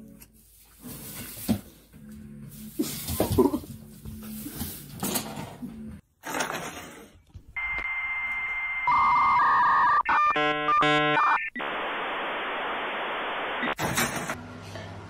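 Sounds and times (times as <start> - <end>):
dial-up modem tones: 7.6 - 13.8.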